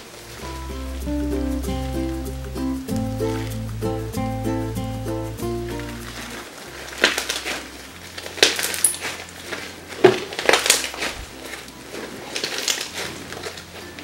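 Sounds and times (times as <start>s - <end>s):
slime squishing: 5.7s - 14.0s.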